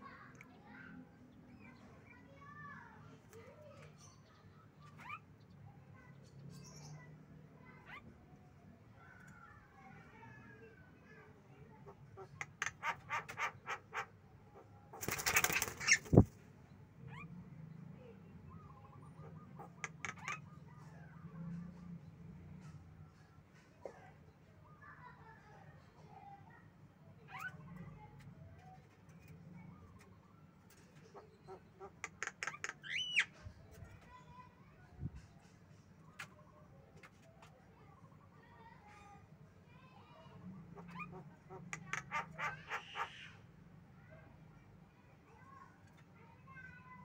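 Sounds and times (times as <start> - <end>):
birds calling with clicking notes: 9.0 - 9.6, 12.1 - 14.1, 18.6 - 20.9, 27.4 - 34.3, 40.8 - 43.4
wings flapping: 15.0 - 16.4.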